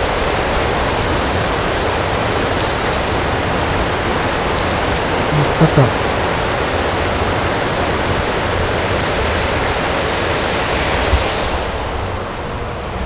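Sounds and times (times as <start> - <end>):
heavy rain pouring: 0.0 - 6.2.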